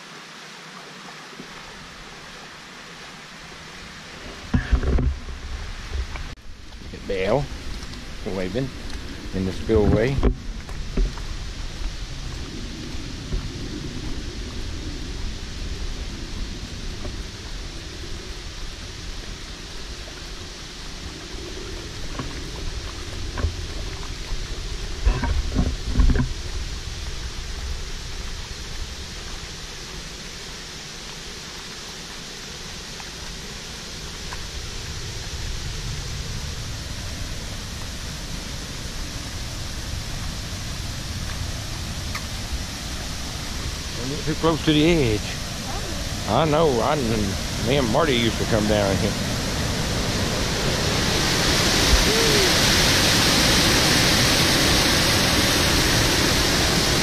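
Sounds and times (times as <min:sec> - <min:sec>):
water rushing over concrete spillway: 0:00.0 - 0:13.4, 0:14.0 - 0:57.0
low rumble: 0:04.2 - 0:30.5.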